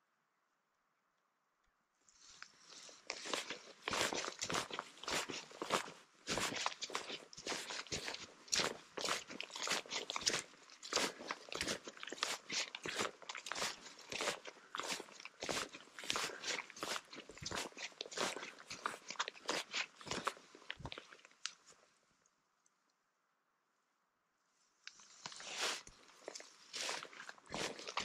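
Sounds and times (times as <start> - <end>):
footsteps on muddy trail: 3.1 - 21.1, 25.5 - 28.0.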